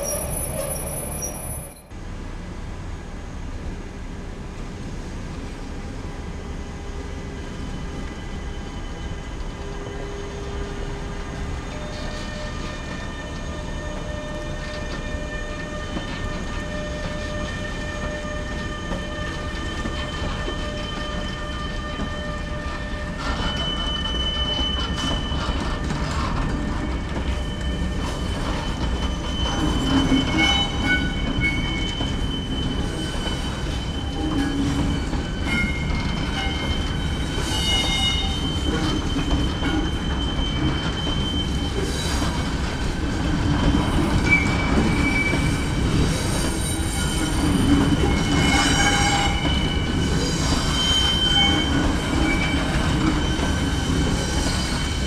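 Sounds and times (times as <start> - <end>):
high-pitched wheel squeals: 0.0 - 1.9, 11.6 - 42.4, 43.9 - 55.0
freight train rumbling past: 0.0 - 55.0
train wagon clanks: 11.7 - 55.0.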